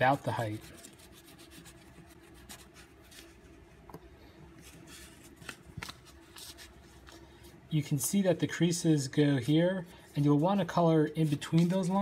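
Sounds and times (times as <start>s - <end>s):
pastel scratching on paper: 0.1s - 3.4s.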